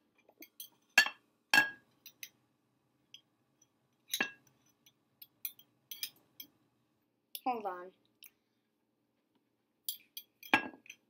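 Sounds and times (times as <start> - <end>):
metal spoon clinking on glass jar: 0.4 - 2.4, 4.1 - 6.6, 9.8 - 11.0.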